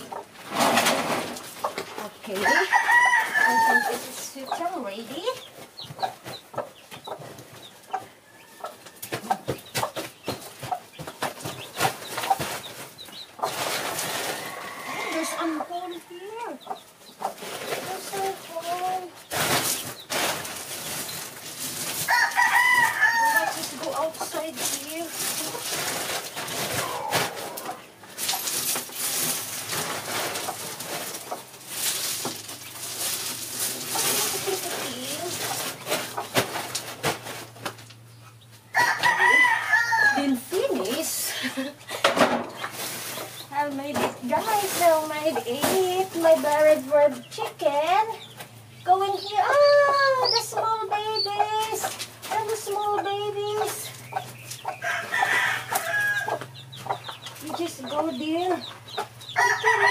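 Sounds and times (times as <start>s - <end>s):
chickens clucking: 0.0s - 59.9s
chicks peeping: 0.0s - 59.9s
rustling noise: 9.9s - 15.6s, 17.3s - 38.0s, 42.4s - 47.2s
hen clucking and cooing: 11.6s - 19.2s, 26.7s - 28.0s, 38.2s - 42.0s, 49.2s - 59.9s
knocks and clicks on gravel: 17.2s - 38.0s, 42.5s - 50.1s.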